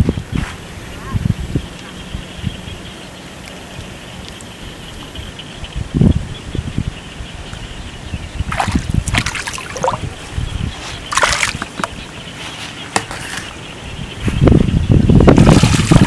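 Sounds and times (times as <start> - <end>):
wind rumble on microphone: 0.0 - 12.4, 13.3 - 16.0
water sloshing and trickling: 8.3 - 13.6, 15.3 - 16.0
loud splashing: 8.5 - 10.2, 11.1 - 11.7, 15.3 - 16.0.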